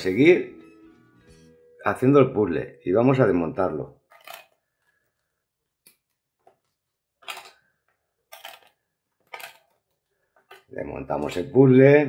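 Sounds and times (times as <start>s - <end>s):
puzzle pieces scraping: 4.1s - 5.1s, 7.2s - 7.7s, 8.3s - 10.7s
faint clicks of puzzle pieces: 4.1s - 10.7s.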